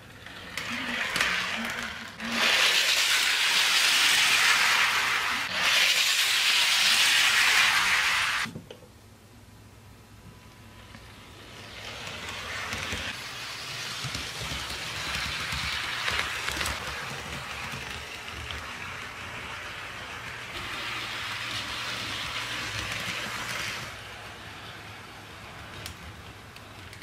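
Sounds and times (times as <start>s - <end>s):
model train wheels rolling on track: 0.0s - 8.5s, 10.4s - 27.0s.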